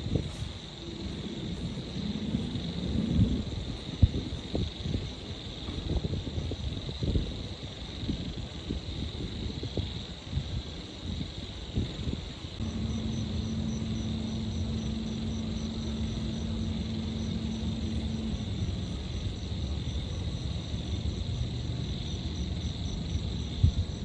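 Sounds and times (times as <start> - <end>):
distant traffic rumble: 0.0 - 6.3, 12.6 - 24.0
insects chirring: 0.0 - 24.0
pulsing insect: 0.0 - 24.0
low hum: 12.6 - 24.0.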